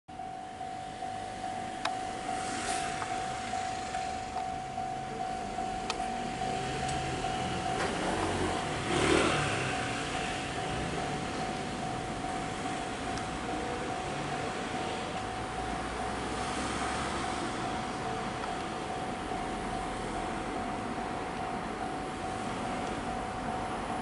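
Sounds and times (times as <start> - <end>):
level crossing alarm ringing: 0.1 - 24.0
road vehicle passing: 0.8 - 24.0.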